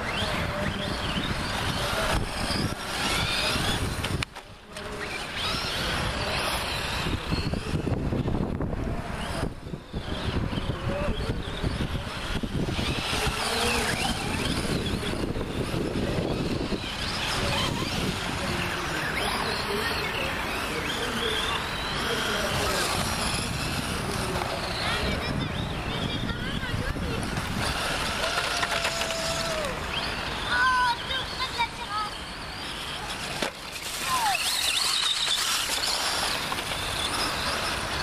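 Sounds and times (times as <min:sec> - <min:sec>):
model car motor whine: 0:00.0 - 0:38.0
tires rolling on gravel: 0:00.0 - 0:38.0.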